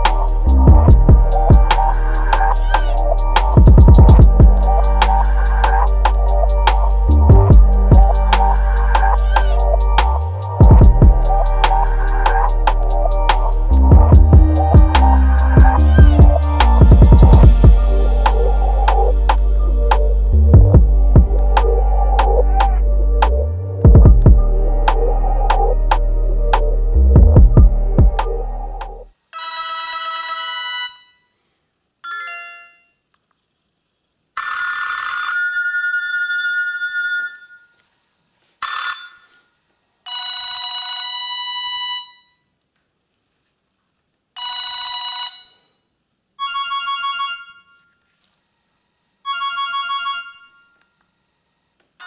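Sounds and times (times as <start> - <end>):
phone ringtone melodies: 0.0 - 26.0, 29.4 - 31.2, 32.0 - 33.0, 44.4 - 45.8, 46.4 - 47.8, 49.2 - 50.8
loud low hum: 0.0 - 29.1.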